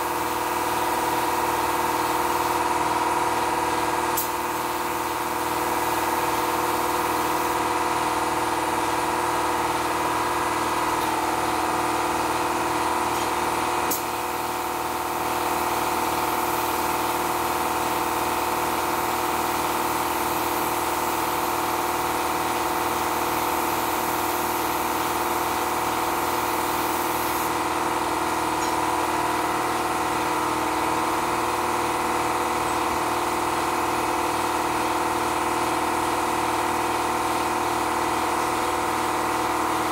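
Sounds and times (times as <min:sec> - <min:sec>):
air compressor running: 0:00.0 - 0:39.9
spray gun hissing: 0:18.1 - 0:27.6.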